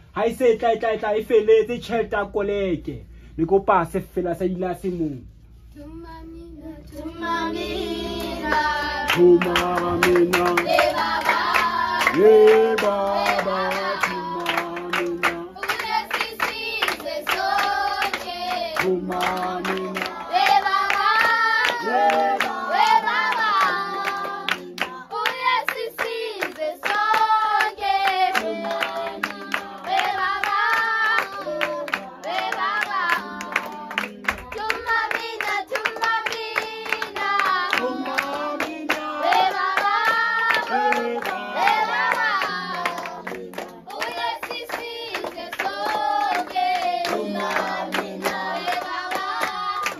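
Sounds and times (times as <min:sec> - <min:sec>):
hands clapping in time: 0:08.5 - 0:22.6.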